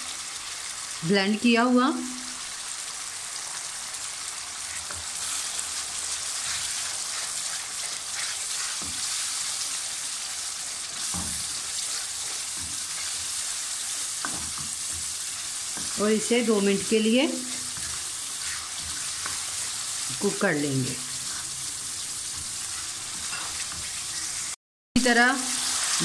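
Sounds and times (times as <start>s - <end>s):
gravy sizzling in hot oil: 0.0s - 26.0s
wooden spoon stirring: 4.7s - 20.2s, 20.9s - 24.5s.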